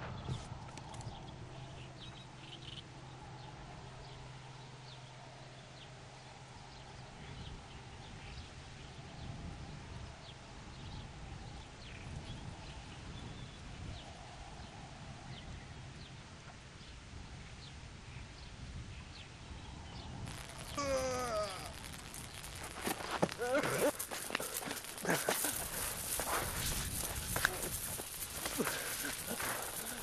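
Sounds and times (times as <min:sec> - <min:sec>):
low rumbling noise: 0:19.5 - 0:30.0.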